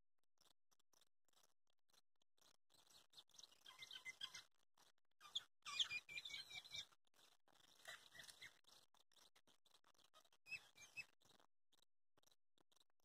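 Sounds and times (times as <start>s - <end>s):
faint bird chirps: 2.4s - 4.6s, 5.2s - 12.9s.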